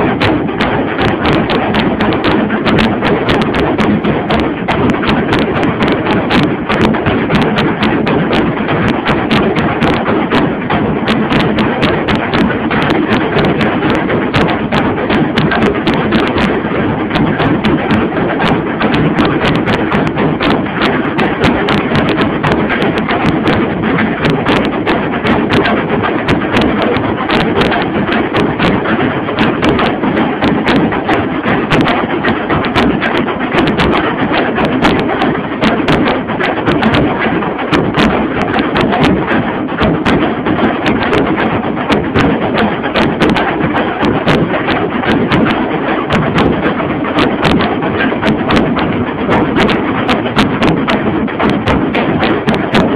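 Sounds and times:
drum ensemble beaten with sticks: 0.0s - 52.9s.

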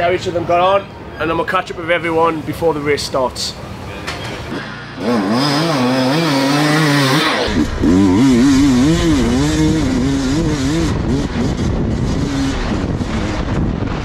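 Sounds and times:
motorcycle engine revving: 4.2s - 14.0s.

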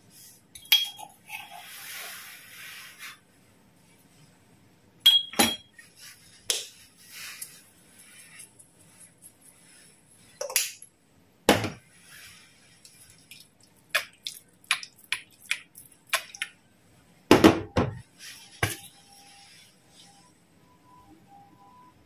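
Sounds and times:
soft hiss of shaken powder: 1.5s - 4.4s, 5.8s - 10.4s, 11.9s - 13.3s.

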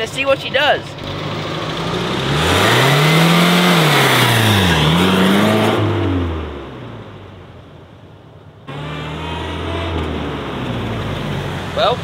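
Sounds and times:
pickup truck engine revving: 1.0s - 7.1s, 8.7s - 11.8s.

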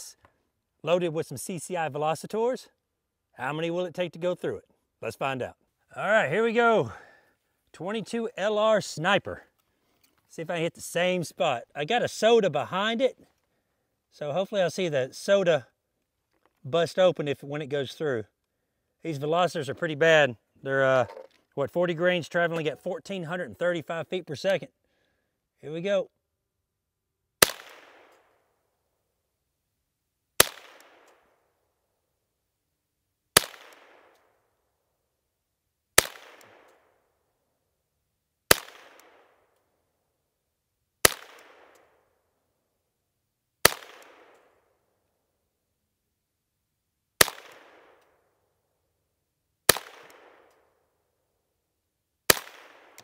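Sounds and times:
rifle shots with echo: 27.4s - 28.4s, 30.4s - 31.4s, 33.4s - 34.4s, 36.0s - 37.0s, 38.5s - 39.4s, 41.0s - 42.0s, 43.6s - 44.6s, 47.2s - 48.1s, 49.7s - 50.7s, 52.3s - 53.0s.

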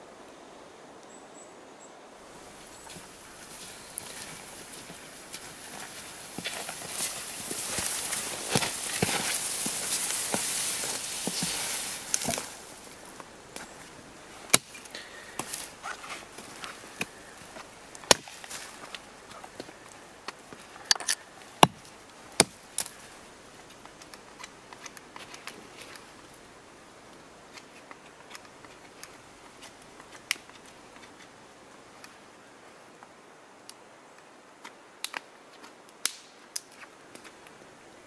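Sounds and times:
faint hiss: 0.0s - 38.0s
light clicks and cracks: 2.8s - 13.9s, 14.5s - 26.4s, 27.1s - 31.4s, 33.0s - 37.6s
hatchet chopping wood: 14.5s - 14.8s, 18.0s - 18.5s, 20.9s - 22.9s.

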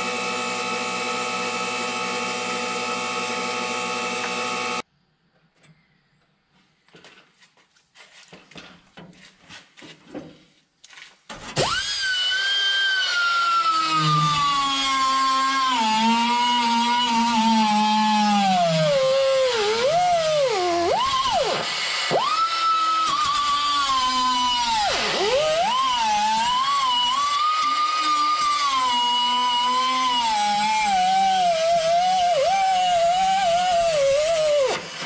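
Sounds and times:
cut-off wheel whining through steel: 0.0s - 4.8s, 11.6s - 35.0s.

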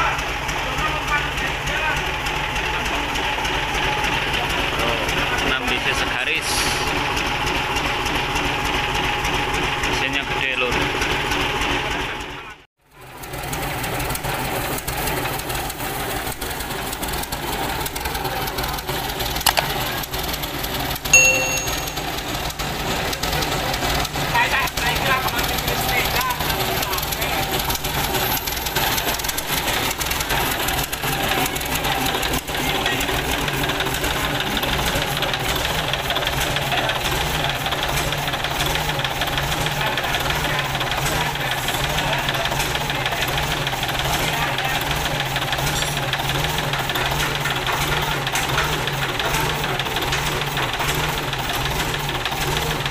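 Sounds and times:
diesel engine running: 0.0s - 52.9s
metallic ding: 21.2s - 22.2s.

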